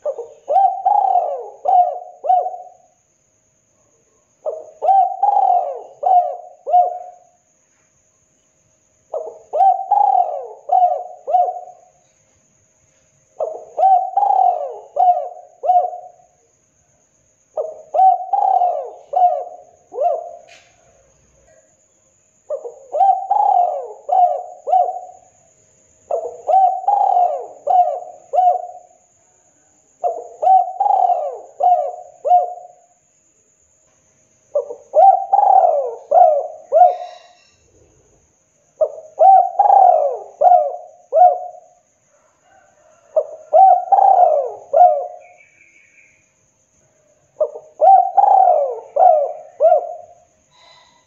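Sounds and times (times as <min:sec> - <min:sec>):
dove cooing: 0:00.0 - 0:03.0, 0:04.4 - 0:07.4, 0:09.1 - 0:12.0, 0:13.4 - 0:16.4, 0:17.6 - 0:21.6, 0:22.5 - 0:25.4, 0:26.1 - 0:29.0, 0:30.0 - 0:32.8, 0:34.5 - 0:37.6, 0:38.8 - 0:45.4, 0:47.4 - 0:51.0.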